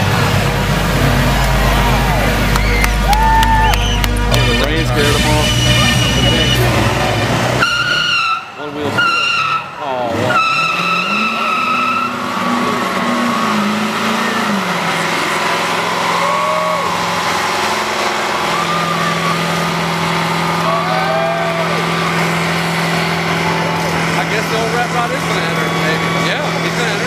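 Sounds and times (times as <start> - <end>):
truck engine revving: 0.0 - 27.0
tyres squealing on pavement: 1.6 - 27.0.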